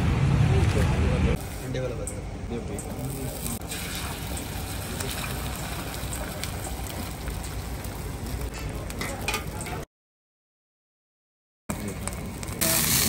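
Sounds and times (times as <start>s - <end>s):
egg sizzling on griddle: 2.9s - 9.7s, 11.7s - 13.0s.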